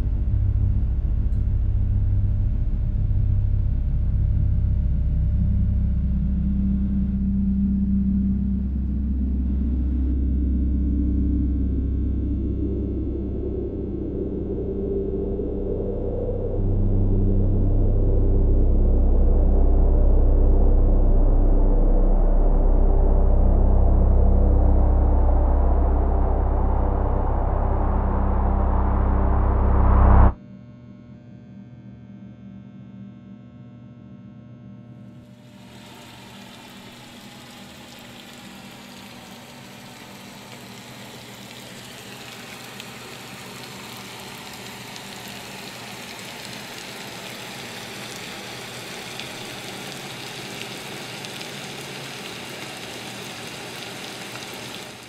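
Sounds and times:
loud low rumble: 0:00.0 - 0:30.4
rain falling: 0:35.4 - 0:55.0.

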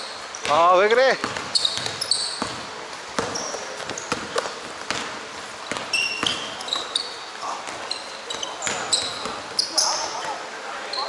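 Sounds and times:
sneakers squeaking on floor: 0:00.0 - 0:11.0
basketball bouncing on court: 0:00.3 - 0:10.4.

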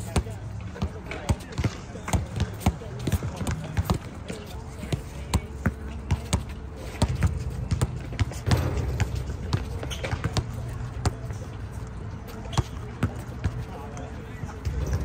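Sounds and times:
basketball bouncing on hard court: 0:00.2 - 0:04.1, 0:04.8 - 0:11.2.

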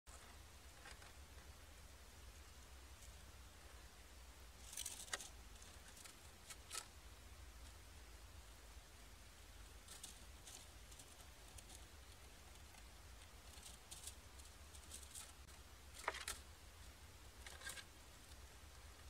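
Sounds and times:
steady low hum: 0:00.1 - 0:19.0
mouse rustling in straw: 0:04.5 - 0:07.8, 0:09.2 - 0:19.0.

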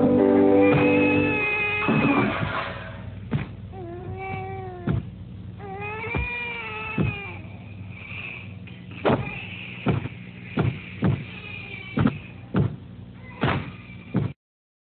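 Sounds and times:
dull thumps: 0:03.3 - 0:05.2, 0:06.1 - 0:07.4, 0:09.0 - 0:14.4.

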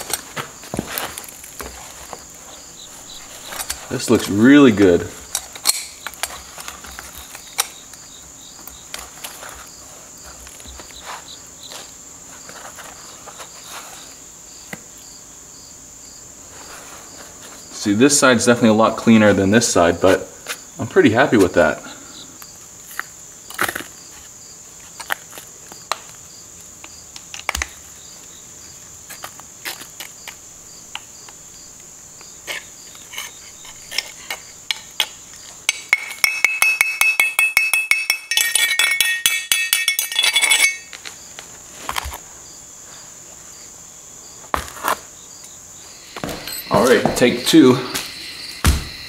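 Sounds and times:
crickets chirping: 0:00.0 - 0:49.0
metallic clinks: 0:35.7 - 0:41.0, 0:46.2 - 0:46.8.

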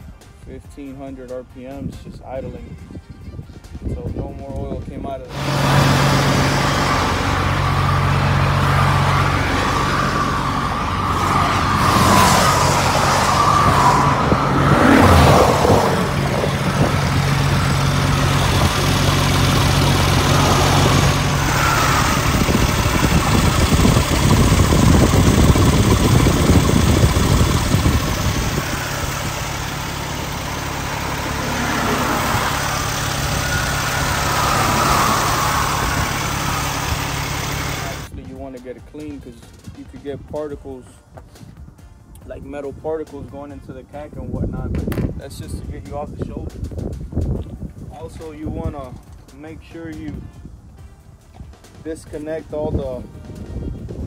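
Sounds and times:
diesel truck engine droning: 0:05.1 - 0:38.1
rushing noise: 0:05.3 - 0:38.1.

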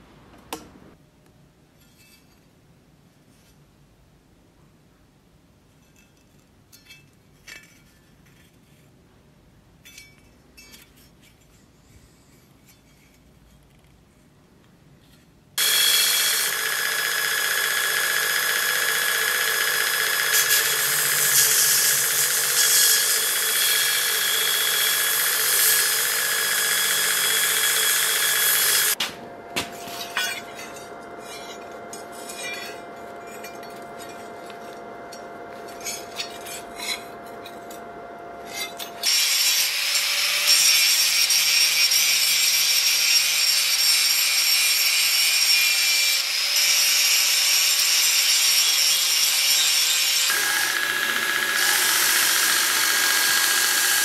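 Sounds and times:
power tool cutting with whine: 0:15.6 - 0:29.0, 0:29.7 - 0:54.0.

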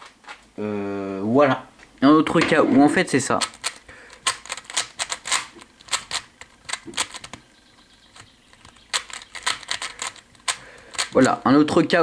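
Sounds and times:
puzzle cube clicking: 0:03.3 - 0:11.3.

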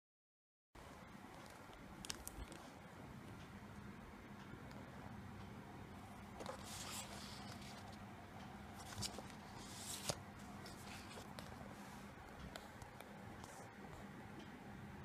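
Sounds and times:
faint low hum: 0:00.8 - 0:15.0
paper rustling: 0:06.4 - 0:08.0, 0:08.8 - 0:11.9.

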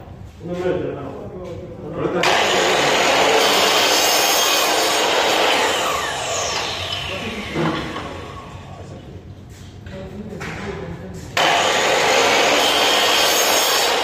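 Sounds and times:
miter saw cutting metal: 0:02.2 - 0:08.9, 0:11.4 - 0:14.0.

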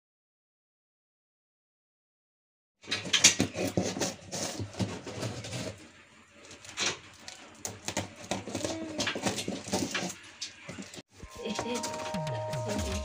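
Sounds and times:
cardboard rustling: 0:02.8 - 0:13.0.

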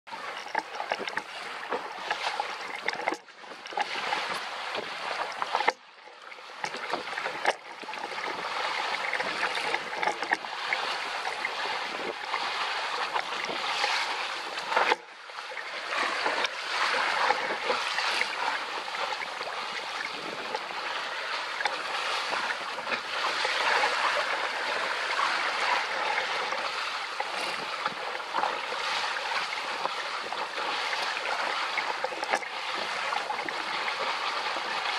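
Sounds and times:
water rushing along boat hull: 0:00.1 - 0:34.9.

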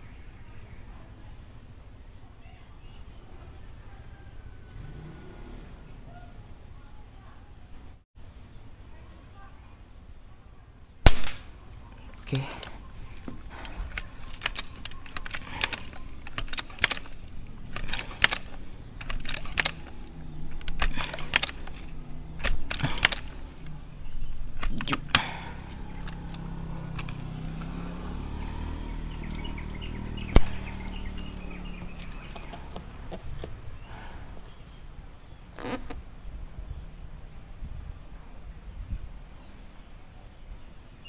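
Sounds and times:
steady low hum: 0:00.0 - 0:39.4
sharp click: 0:11.0 - 0:11.6, 0:12.6 - 0:23.8, 0:24.4 - 0:27.8, 0:30.2 - 0:32.6
air rifle pump clacking: 0:12.6 - 0:27.7, 0:30.2 - 0:32.6.

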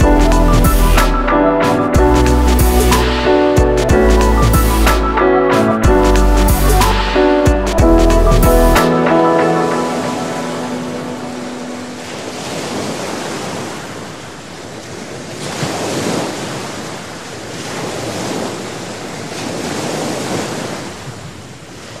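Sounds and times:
waves breaking on shore: 0:08.8 - 0:22.0.

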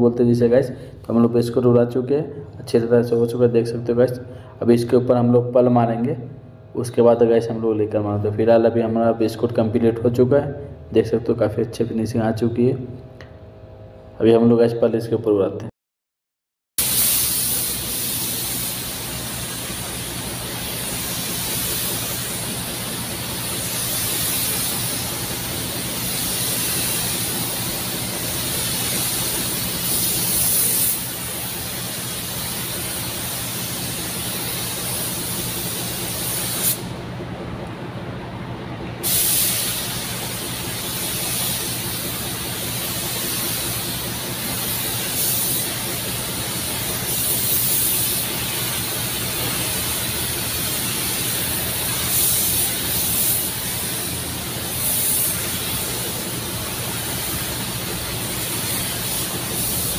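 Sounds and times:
spray gun hissing: 0:16.8 - 0:36.9, 0:39.0 - 0:59.9
steady low hum: 0:16.8 - 0:59.9.

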